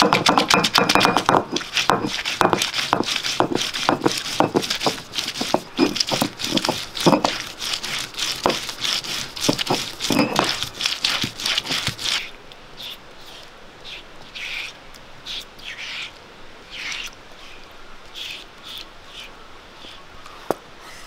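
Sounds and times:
vegetable skins crackling and tearing: 0:01.2 - 0:12.3.

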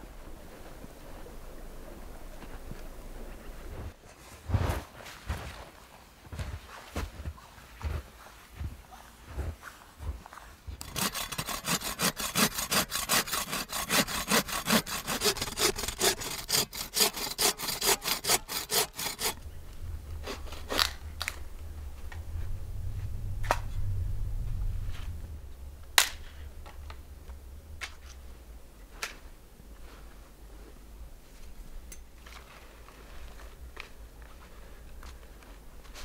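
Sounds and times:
footsteps crunching through snow: 0:00.4 - 0:10.8
low rumble: 0:19.4 - 0:28.9.

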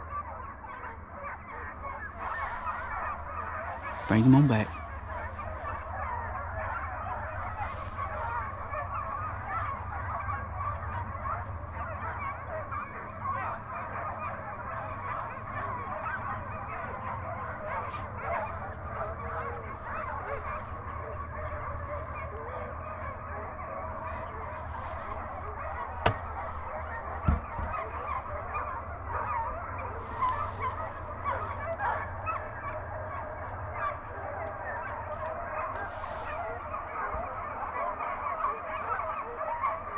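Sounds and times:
hounds baying: 0:00.0 - 0:39.9
sharp knocks: 0:26.0 - 0:26.3, 0:27.3 - 0:27.7.

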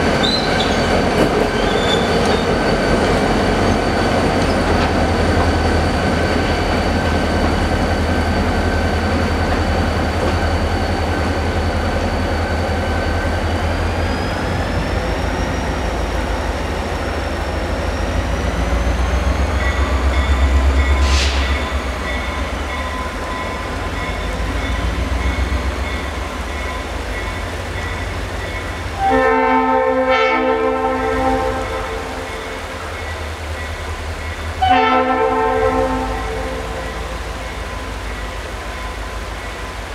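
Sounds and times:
high wheel squeal: 0:00.0 - 0:28.8
diesel locomotives rumbling: 0:00.0 - 0:39.9
train horn chord: 0:29.0 - 0:32.8, 0:34.6 - 0:37.1.

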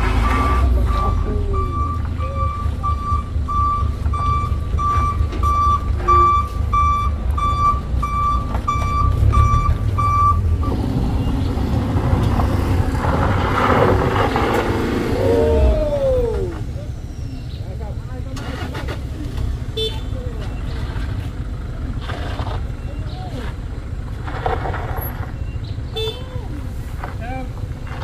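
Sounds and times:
rough engine noise: 0:00.0 - 0:28.0
van engine running: 0:00.0 - 0:28.0
reverse warning beeper: 0:00.2 - 0:11.5.

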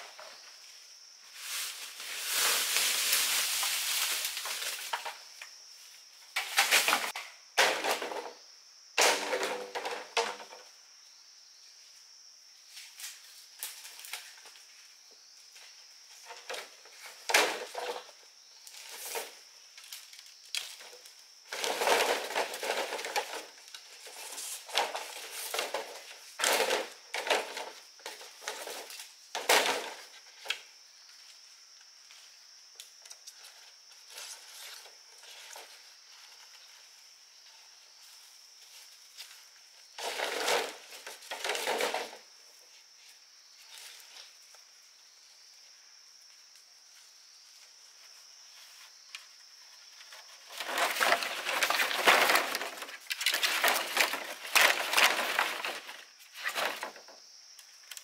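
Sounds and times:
rustling leaves: 0:00.0 - 0:08.2, 0:12.6 - 0:58.0
poles dragged through undergrowth: 0:01.2 - 0:05.4, 0:16.2 - 0:31.2, 0:33.3 - 0:44.5, 0:46.8 - 0:57.2.

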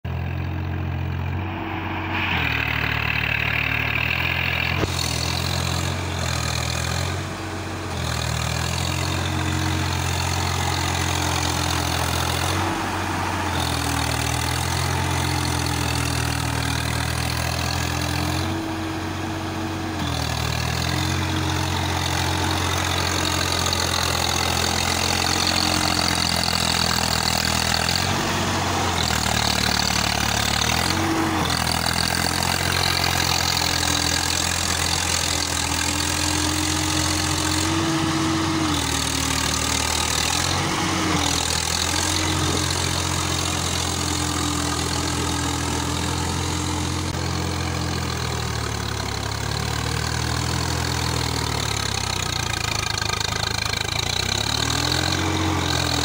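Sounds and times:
tractor diesel engine under load: 0:00.0 - 0:56.0
steady rushing noise: 0:01.3 - 0:04.8.

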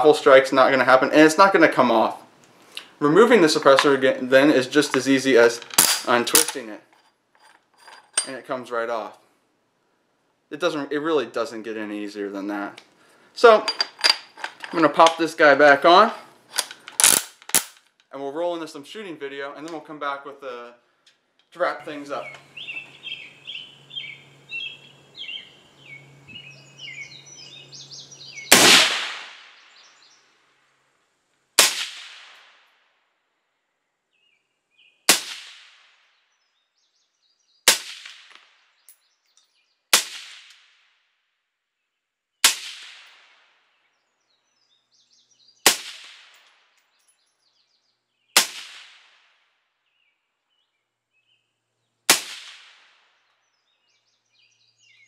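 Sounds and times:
suppressed rifle shots: 0:16.9 - 0:17.8, 0:28.5 - 0:29.5
birds chirping: 0:21.5 - 0:28.6, 0:29.6 - 0:30.4, 0:43.7 - 0:45.7, 0:46.6 - 0:48.4, 0:49.8 - 0:52.1, 0:53.2 - 0:55.0.

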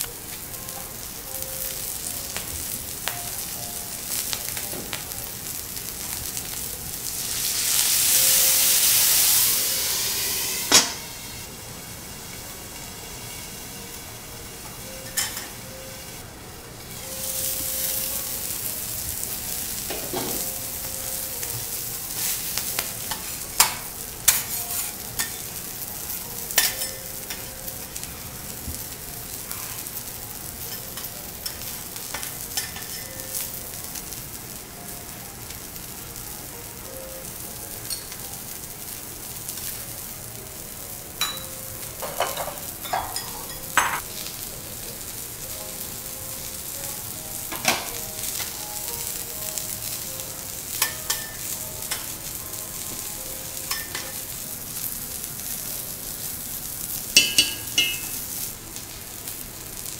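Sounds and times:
food sizzling on griddle: 0:00.0 - 0:59.9
utensils tapping on metal: 0:14.6 - 0:15.6, 0:26.5 - 0:27.6, 0:30.7 - 0:33.5, 0:37.8 - 0:38.2, 0:41.2 - 0:44.0, 0:50.7 - 0:52.2, 0:53.6 - 0:54.3, 0:57.2 - 0:58.3.

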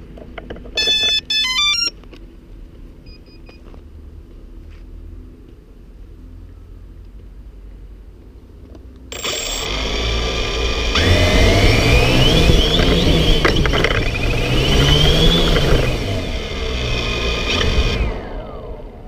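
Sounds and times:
drone propellers whining: 0:09.1 - 0:19.0.

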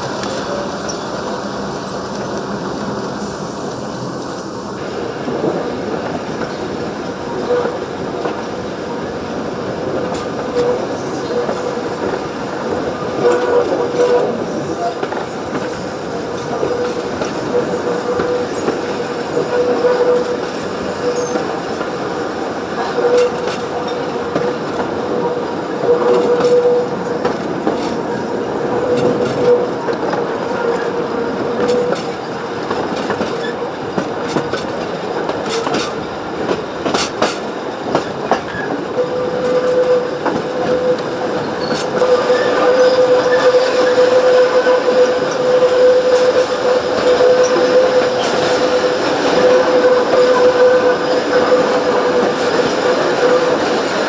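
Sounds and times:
train carriages rumbling on track: 0:00.0 - 0:54.0
wheels clicking over rail joints: 0:25.9 - 0:53.9
wheel squeal on curves: 0:38.5 - 0:53.6.

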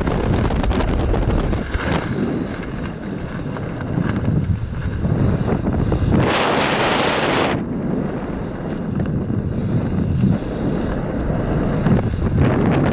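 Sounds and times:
wind buffeting microphone: 0:00.0 - 0:12.9.

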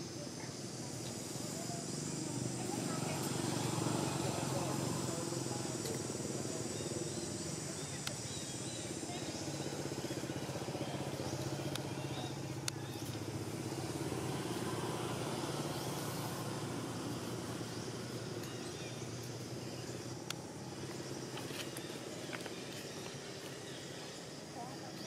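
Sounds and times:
engine humming: 0:00.0 - 0:25.0.

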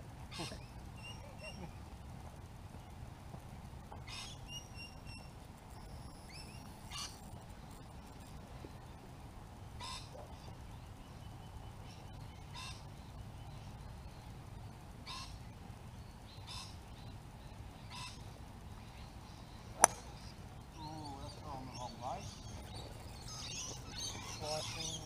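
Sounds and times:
bird calling: 0:19.6 - 0:25.0
golf club striking ball: 0:19.8 - 0:20.3.

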